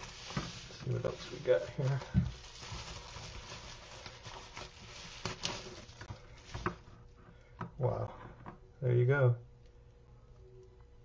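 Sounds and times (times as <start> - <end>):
bubble wrap crinkling: 0.0 - 7.2.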